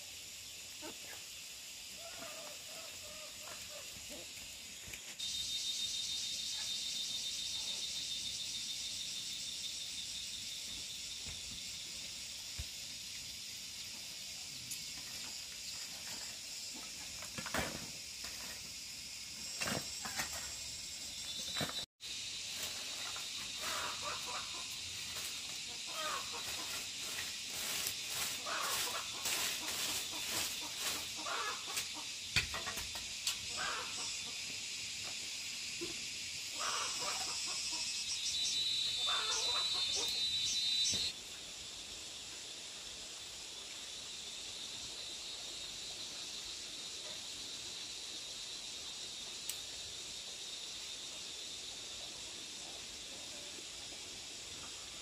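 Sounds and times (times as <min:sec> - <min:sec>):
high-pitched insect drone: 0:00.0 - 0:55.0
chickens clucking: 0:28.4 - 0:32.1.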